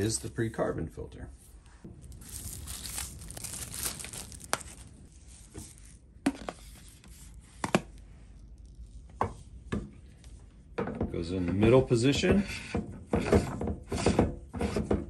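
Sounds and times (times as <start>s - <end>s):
plastic wrap crinkling: 1.9s - 6.2s.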